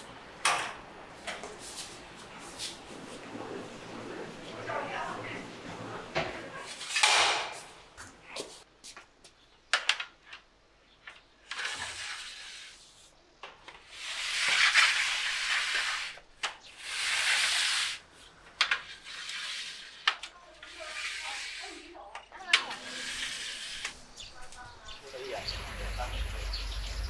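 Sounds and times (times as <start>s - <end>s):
trays scraping along racks: 18.8s - 22.0s, 22.6s - 24.2s.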